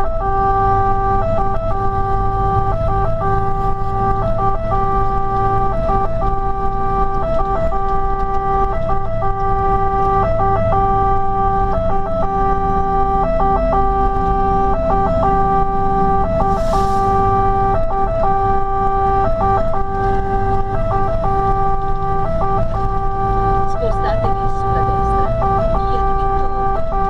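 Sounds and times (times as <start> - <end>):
fire engine two-tone siren: 0.0 - 27.0
truck engine rumble: 0.0 - 27.0.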